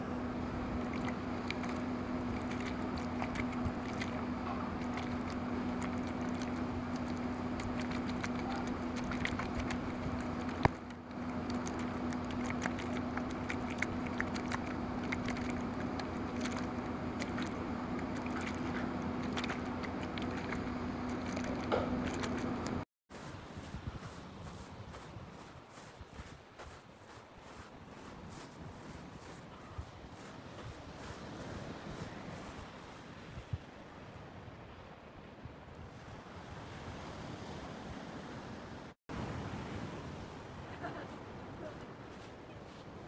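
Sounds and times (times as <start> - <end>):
steady low hum: 0.0 - 34.2.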